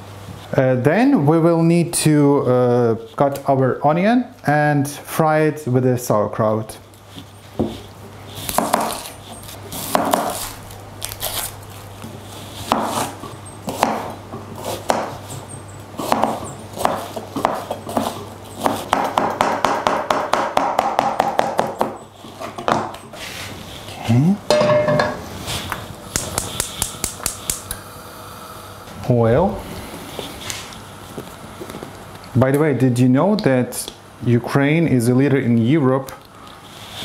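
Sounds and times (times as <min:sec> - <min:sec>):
knife chopping on cutting board: 0:08.5 - 0:09.2, 0:09.8 - 0:10.5, 0:12.6 - 0:15.2, 0:16.0 - 0:22.0.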